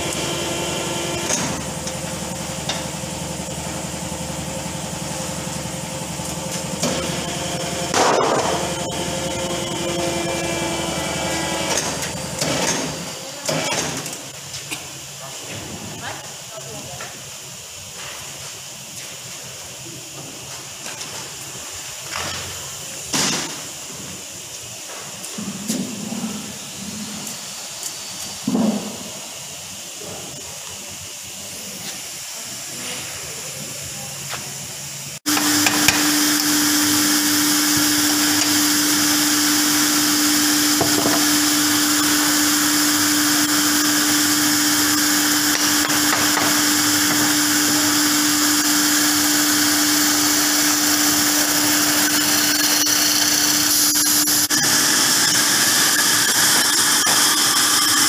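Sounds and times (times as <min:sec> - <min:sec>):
woodworking machine humming: 0:00.0 - 0:13.9, 0:34.9 - 0:58.0.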